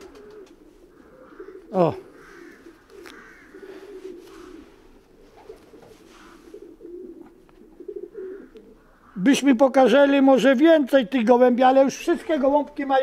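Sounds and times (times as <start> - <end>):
pigeons cooing: 0.0 - 9.3.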